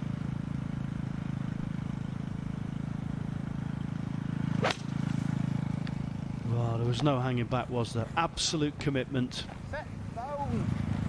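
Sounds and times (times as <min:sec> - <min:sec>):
low mechanical hum: 0:00.0 - 0:11.0
golf club striking ball: 0:04.5 - 0:06.0.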